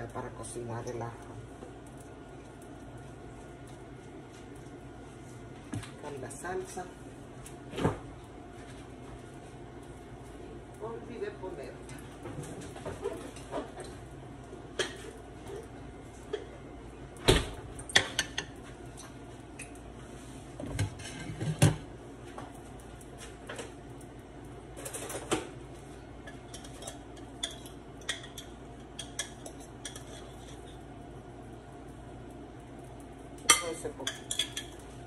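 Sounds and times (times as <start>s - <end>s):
dishes and utensils clinking: 26.3s - 30.8s, 33.4s - 34.8s.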